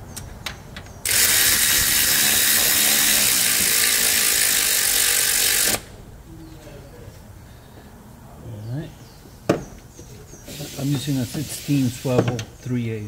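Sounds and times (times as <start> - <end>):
electric ratchet whirring: 1.0 - 6.0.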